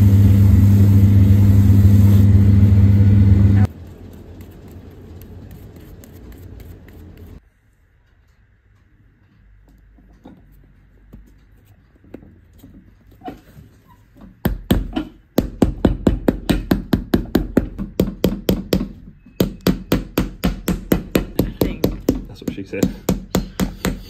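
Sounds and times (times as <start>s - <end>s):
hammer striking leather heel: 14.4s - 24.0s.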